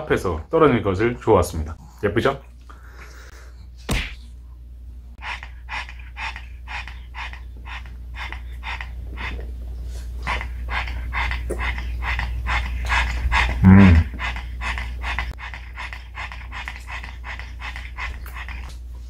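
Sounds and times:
dog panting: 5.1 - 19.0.

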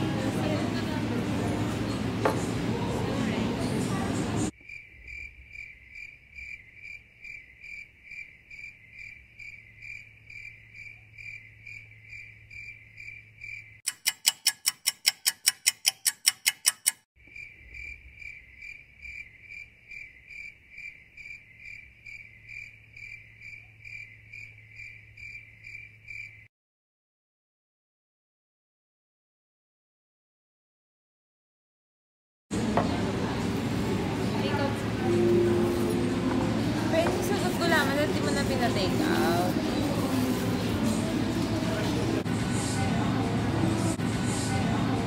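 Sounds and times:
cricket chirping: 4.6 - 13.8, 17.2 - 26.5
loud fast clicks: 13.9 - 17.1.

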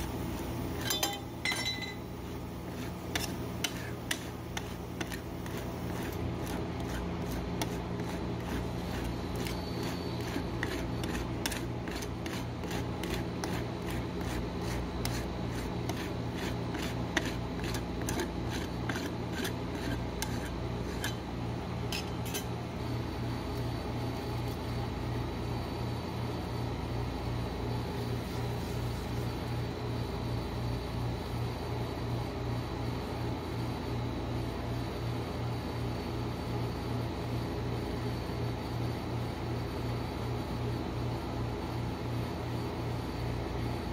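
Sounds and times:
refrigeration compressor hum: 0.0 - 43.9
metal spatula scraping and tapping: 0.4 - 21.3, 21.9 - 22.5.

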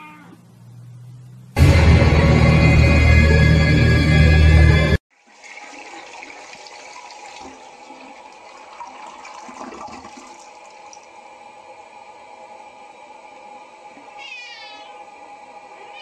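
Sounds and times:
loud music: 1.6 - 5.0
toilet flushing: 5.1 - 11.4.

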